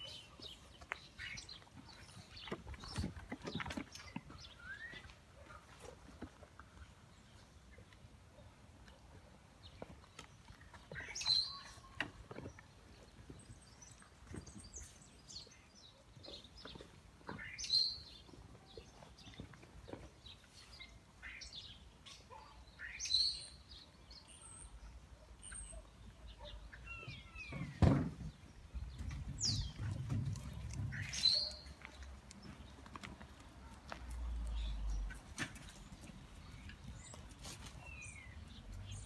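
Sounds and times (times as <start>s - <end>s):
bird chirping: 10.1s - 32.7s.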